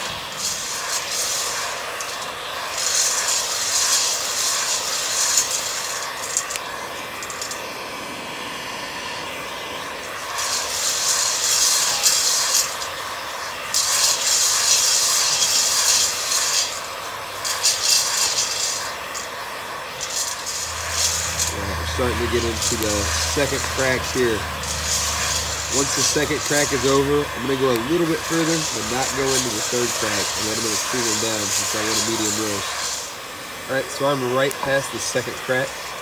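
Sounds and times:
coffee beans popping: 0:00.0 - 0:07.8, 0:13.6 - 0:33.2
heat gun blowing hot air: 0:00.0 - 0:36.0.

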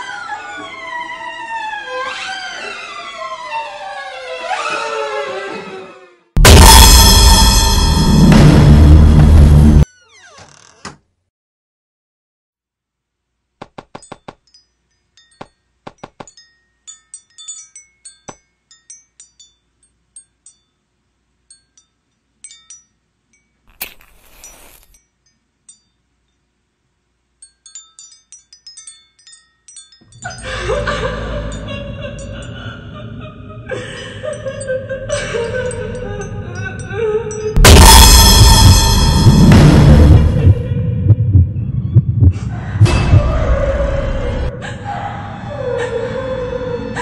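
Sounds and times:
loud music: 0:06.4 - 0:09.8, 0:37.6 - 0:40.7
wind chimes tinkling: 0:14.0 - 0:26.7, 0:27.3 - 0:32.8, 0:33.8 - 0:37.6.

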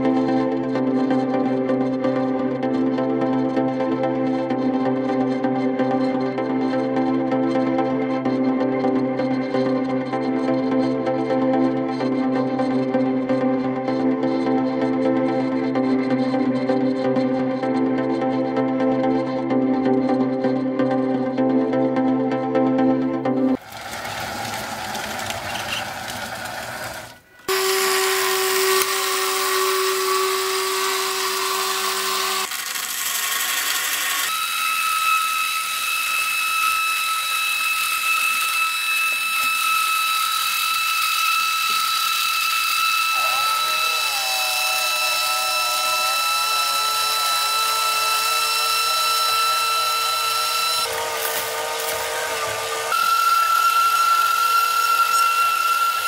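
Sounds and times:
small motors whining: 0:23.6 - 0:56.0.

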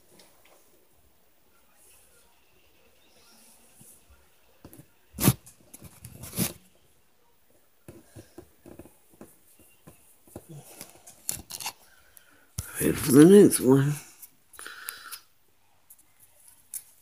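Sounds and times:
rustling: 0:04.7 - 0:06.7.

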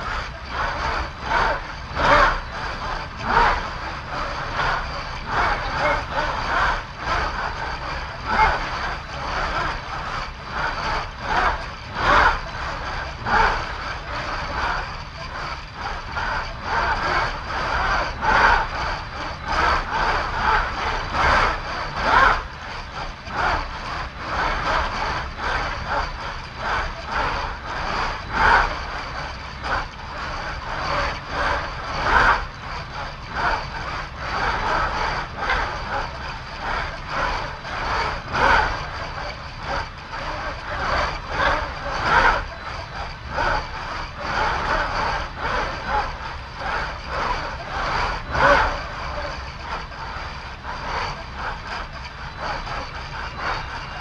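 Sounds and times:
motion platform actuator surges: 0:00.0 - 0:54.0.

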